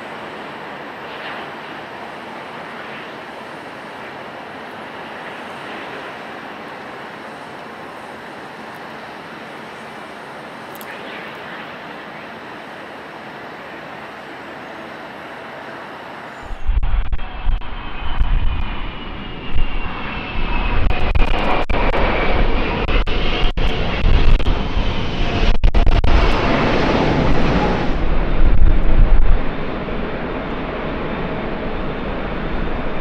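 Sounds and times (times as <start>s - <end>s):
high engine whine: 0.0s - 33.0s
jet passing with heavy rumble: 0.1s - 14.0s, 15.9s - 33.0s.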